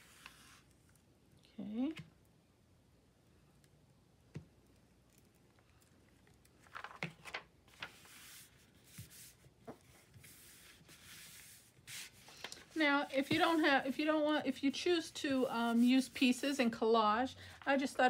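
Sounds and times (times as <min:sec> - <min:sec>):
paper rustling: 0:06.5 - 0:14.0
hand rubbing paper: 0:07.8 - 0:16.7.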